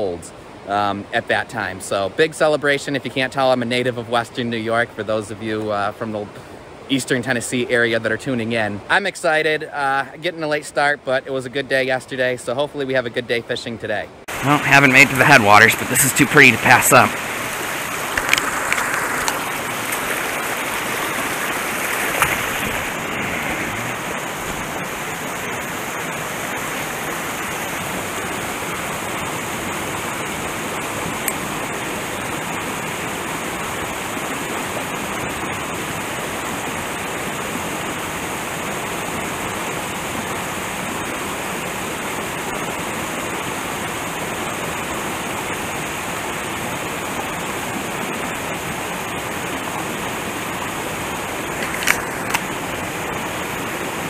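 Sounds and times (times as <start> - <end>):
brook rushing over rocks: 14.3 - 32.0.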